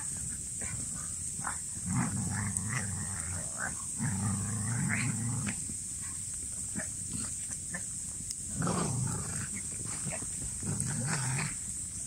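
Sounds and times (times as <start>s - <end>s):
dog growling: 0.0s - 5.6s, 8.6s - 11.6s.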